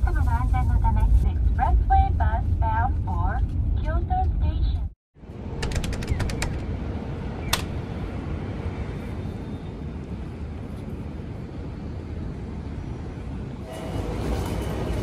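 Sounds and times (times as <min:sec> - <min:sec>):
city traffic rumble: 0:00.0 - 0:15.0
sharp click: 0:07.5 - 0:07.8.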